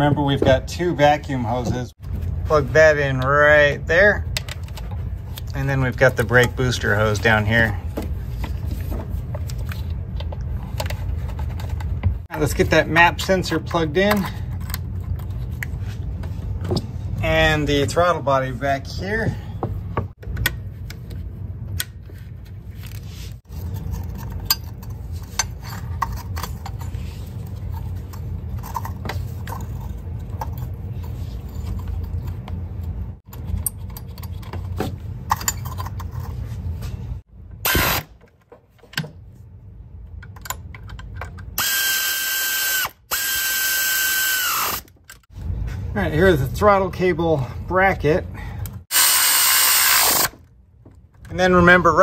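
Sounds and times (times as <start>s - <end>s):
power tool whine: 41.6s - 44.9s, 48.9s - 50.4s.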